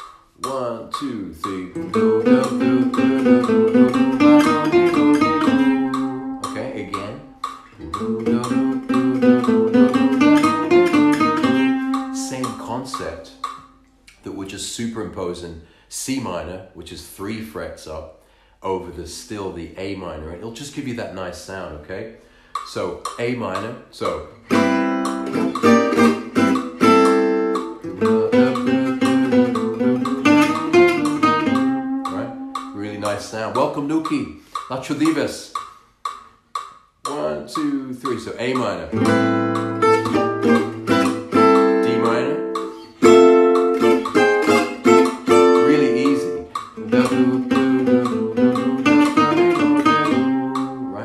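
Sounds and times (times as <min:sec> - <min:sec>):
acoustic guitar picked: 0:00.0 - 0:15.2, 0:22.2 - 0:35.6, 0:37.0 - 0:51.0.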